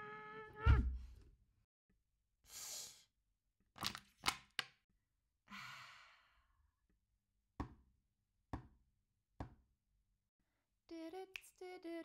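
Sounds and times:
long breathy sigh: 5.5 - 6.5.

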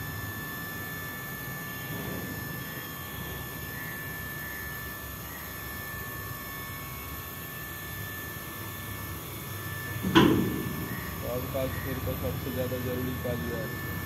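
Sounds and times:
scissor lift mechanical hum: 0.0 - 14.0
high whine: 9.1 - 14.0.

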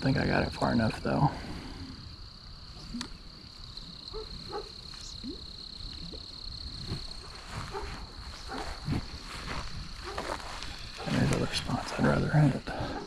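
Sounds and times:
high-pitched insect drone: 0.0 - 13.0
frog calls: 2.0 - 9.1, 10.0 - 13.0.

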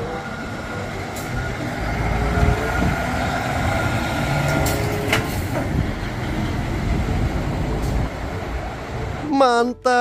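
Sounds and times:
truck diesel engine rumbling: 0.0 - 10.0.

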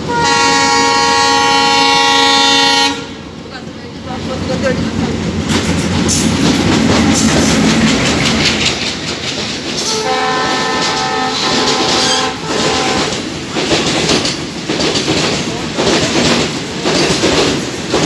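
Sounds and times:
locomotive horn chord: 0.0 - 3.2, 9.8 - 13.2
train wheels clattering on rails: 4.1 - 18.0.

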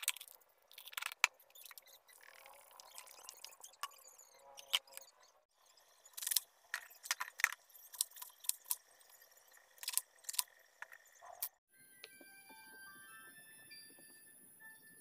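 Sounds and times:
soft background music: 11.7 - 15.0.

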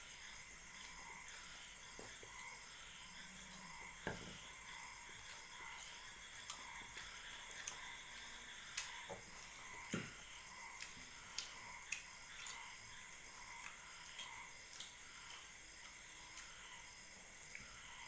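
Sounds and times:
chewing: 0.2 - 18.0.

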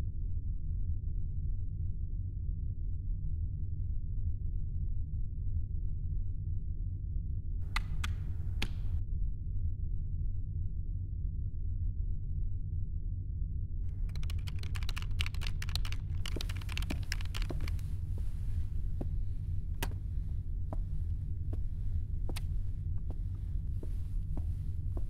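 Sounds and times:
steady low hum: 9.6 - 25.0
typing on a computer keyboard: 13.9 - 18.0.

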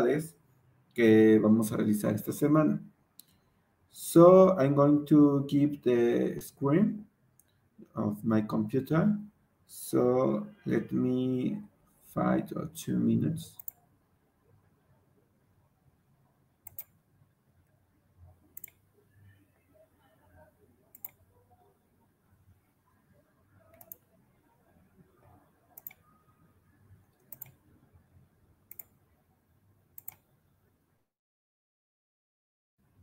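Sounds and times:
computer mouse clicks: 13.6 - 13.8, 16.6 - 17.0, 18.6 - 18.8, 20.9 - 21.2, 23.7 - 24.1, 25.7 - 26.1, 27.1 - 27.6, 28.7 - 29.0, 30.0 - 30.3.

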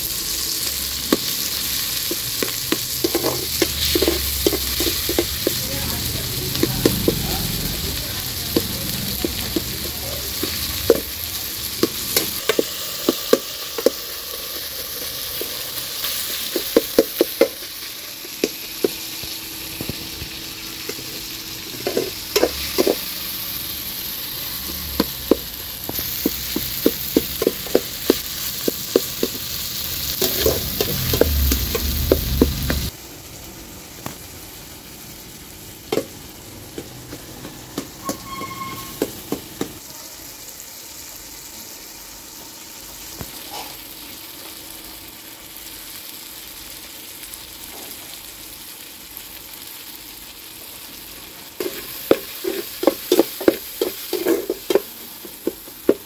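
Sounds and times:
vegetables sizzling in a pot: 0.0 - 56.0
metal spatula scraping a pot: 30.1 - 31.2, 38.0 - 39.1, 51.6 - 55.6.

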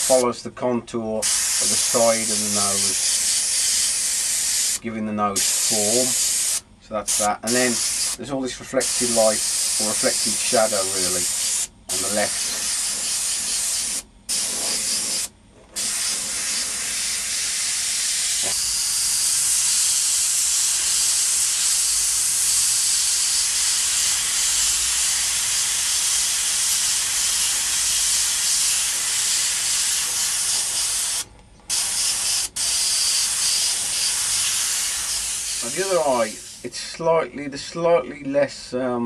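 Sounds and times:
airbrush hissing: 0.0 - 0.2, 1.2 - 4.8, 5.4 - 37.0.

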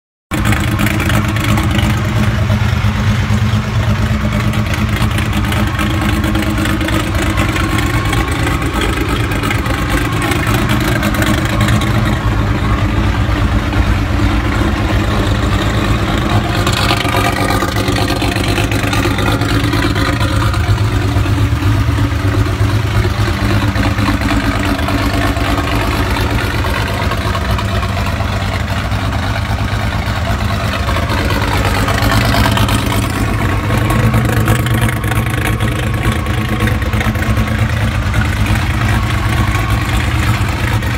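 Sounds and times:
car engine idling loudly: 0.3 - 40.9.

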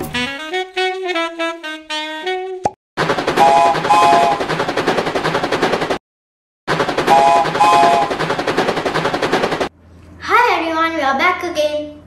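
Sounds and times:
steam train chuffing: 3.0 - 6.0, 6.7 - 9.7
steam train chord whistle: 3.4 - 4.4, 7.1 - 8.2.

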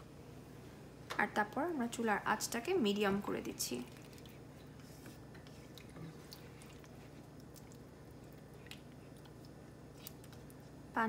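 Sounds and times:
spatula stirring wet food: 3.8 - 10.7.

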